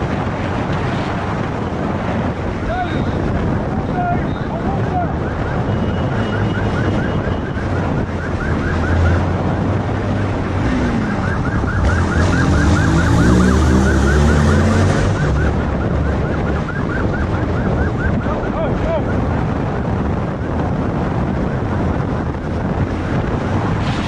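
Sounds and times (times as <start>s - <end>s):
police siren yelping: 4.2s - 19.5s
motorcycle engine revving: 8.3s - 15.8s.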